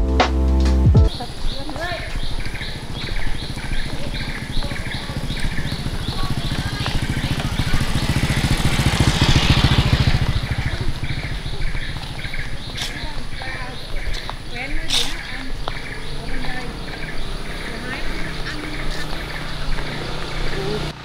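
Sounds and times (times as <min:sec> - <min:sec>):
small motorcycle passing by: 0:01.1 - 0:21.0.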